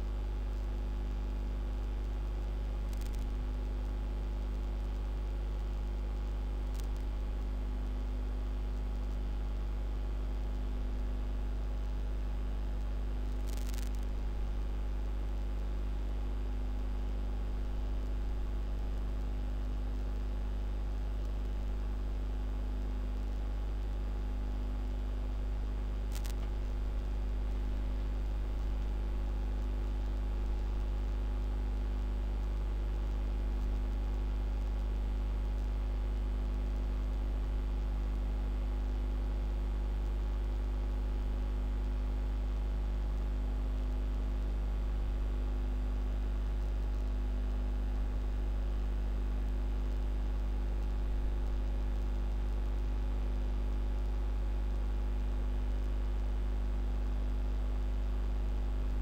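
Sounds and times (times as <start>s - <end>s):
electrical mains hum: 0.0s - 59.0s
light hiss: 25.8s - 30.8s.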